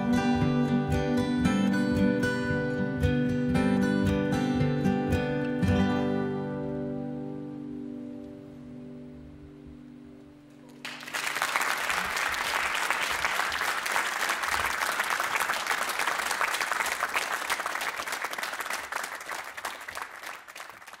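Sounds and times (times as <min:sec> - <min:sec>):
music: 0:00.0 - 0:11.1
studio audience applauding: 0:10.8 - 0:21.0.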